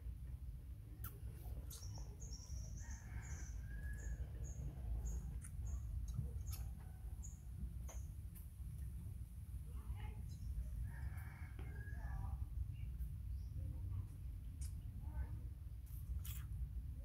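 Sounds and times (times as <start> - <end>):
steady low rumble: 0.0 - 17.0
rooster crowing faintly: 2.7 - 4.8, 10.8 - 12.4.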